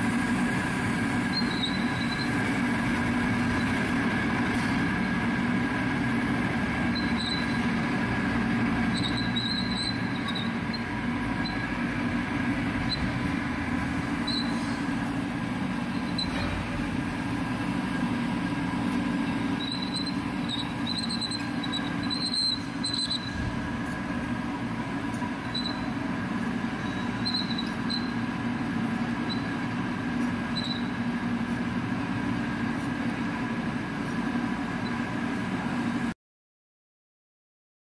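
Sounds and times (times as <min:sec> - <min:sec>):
drill bit squeaks: 0:01.3 - 0:02.4, 0:06.9 - 0:07.7, 0:08.9 - 0:11.7, 0:14.2 - 0:14.7, 0:15.9 - 0:16.5, 0:19.6 - 0:23.4, 0:25.4 - 0:26.0, 0:26.8 - 0:28.2, 0:29.2 - 0:29.6, 0:30.5 - 0:31.0.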